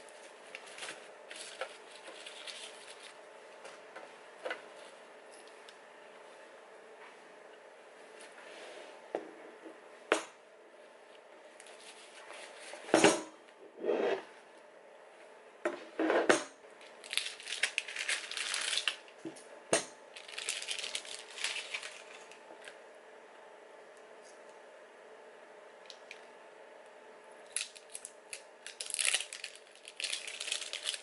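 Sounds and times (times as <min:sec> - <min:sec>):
packaging rustling: 0:00.1 - 0:03.2, 0:16.8 - 0:19.0, 0:20.2 - 0:22.4, 0:27.5 - 0:31.0.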